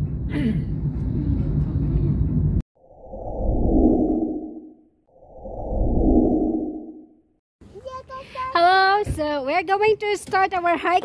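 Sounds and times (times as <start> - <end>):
low muffled whoosh: 2.8 - 7.1.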